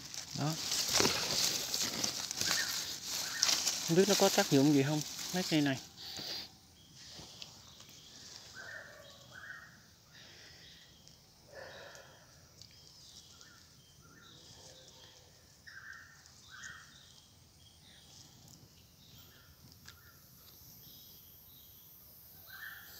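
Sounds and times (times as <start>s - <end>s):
footsteps crunching dry leaves: 0.0s - 6.4s.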